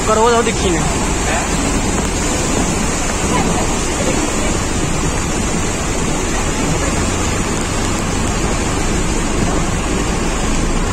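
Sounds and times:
muddy water rushing: 0.0 - 10.9.

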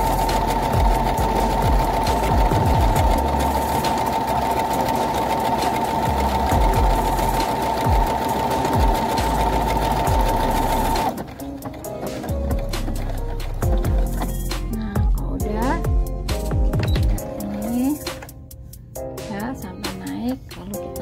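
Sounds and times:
sewing machine motor whine: 0.0 - 11.4.

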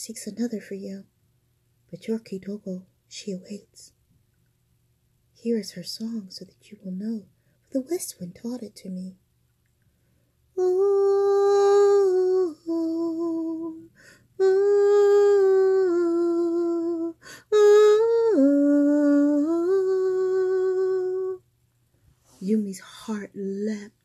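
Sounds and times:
woman humming: 10.6 - 21.4.

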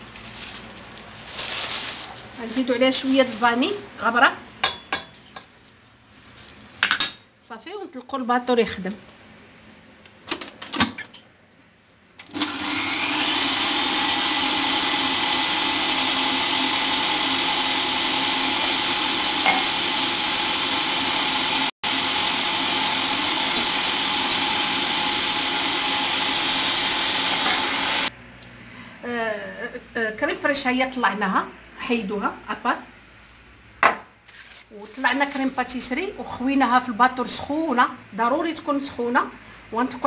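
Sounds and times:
stand mixer motor running: 12.3 - 28.1.

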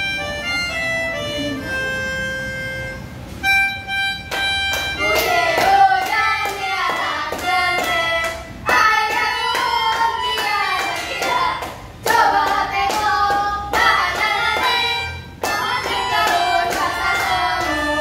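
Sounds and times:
melodica playing: 0.0 - 12.8, 13.6 - 18.0
harmonica playing: 0.0 - 18.0
rhythmic hand clapping: 3.7 - 18.0.

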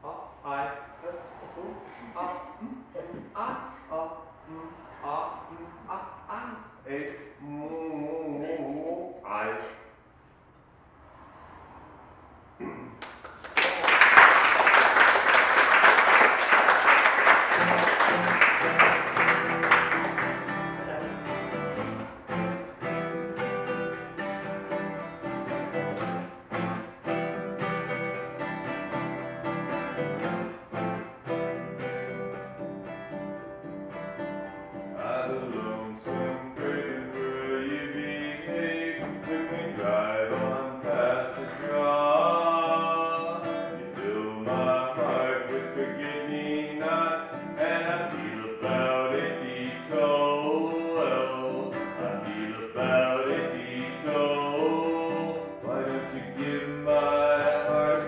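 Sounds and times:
man singing: 5.4 - 9.2, 34.9 - 58.0
acoustic guitar strumming: 17.0 - 58.0.

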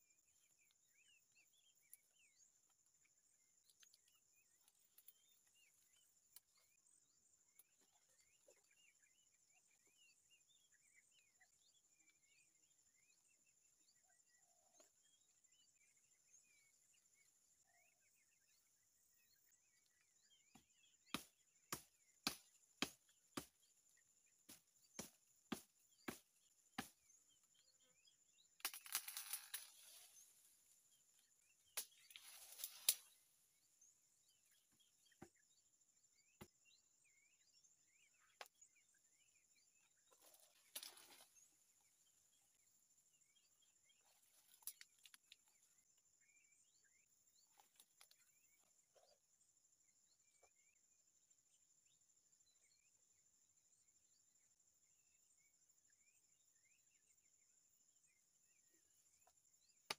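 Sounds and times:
branches cracking: 28.6 - 30.3, 31.8 - 33.2, 40.2 - 41.3
rustling leaves and twigs: 28.6 - 30.9, 31.8 - 33.4, 40.1 - 41.6.

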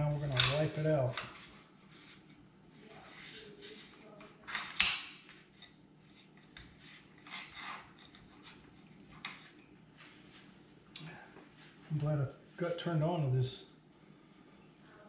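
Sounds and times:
cloth rubbing on metal: 0.1 - 4.2.

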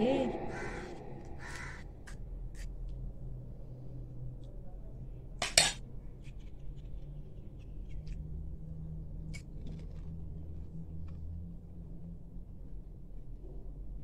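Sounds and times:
faint crunching chewing: 9.2 - 11.3
crisp shell cracking: 9.3 - 10.2.

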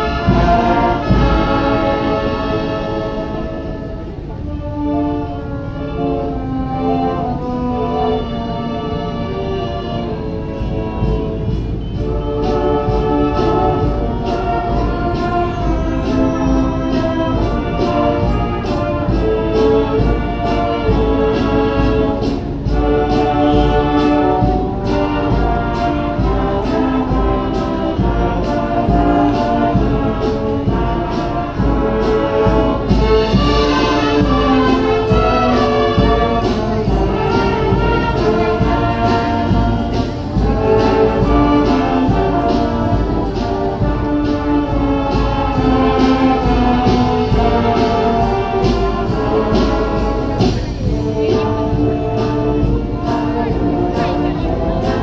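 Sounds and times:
brass and wind band playing: 0.0 - 55.0.

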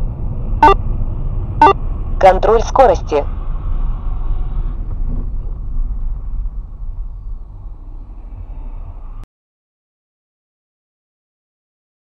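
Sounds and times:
car engine and tyres rumbling: 0.0 - 9.3.

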